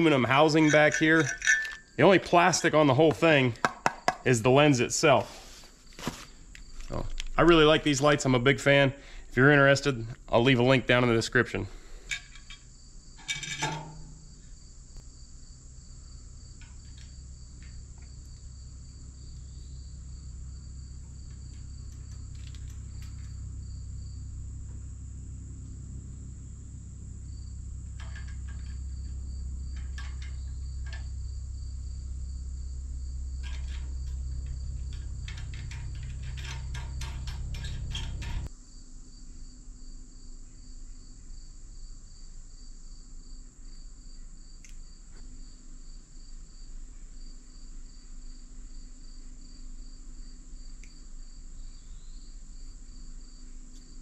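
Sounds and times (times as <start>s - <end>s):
low steady hum: 0.0s - 41.8s
insects chirping: 0.0s - 54.0s.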